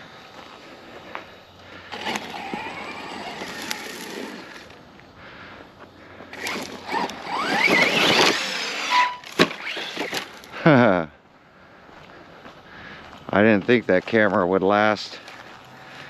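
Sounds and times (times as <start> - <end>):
toy truck driving over dirt: 0.0 - 11.0
electric motor whine: 1.8 - 4.9, 6.3 - 10.5.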